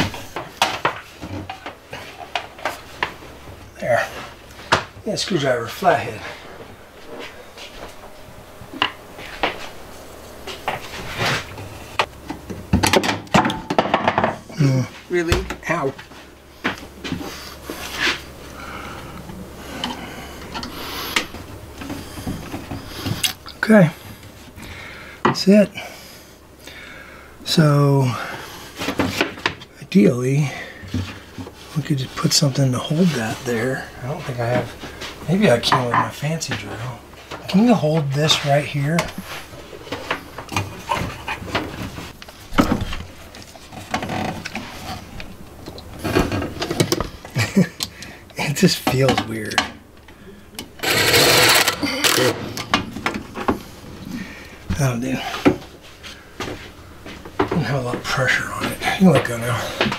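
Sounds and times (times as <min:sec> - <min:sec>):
steady low hum: 0:00.0 - 0:59.9.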